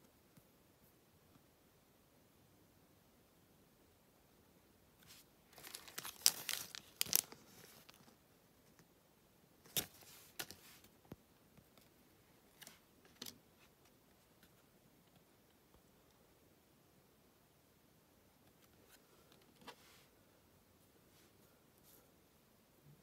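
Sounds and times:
foil wrapper crinkling: 0:05.5 - 0:08.1.

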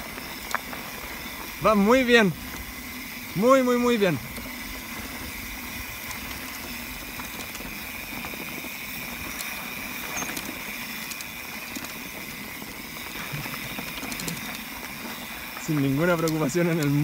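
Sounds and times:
bike tyres rolling on dirt: 0:00.0 - 0:17.0
small clicks and rattles: 0:05.9 - 0:17.0.

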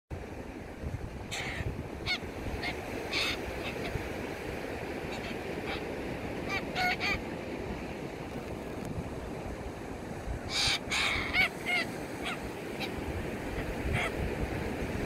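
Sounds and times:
surf washing: 0:00.1 - 0:15.0
cockatoos calling: 0:01.3 - 0:04.2, 0:10.5 - 0:14.2.

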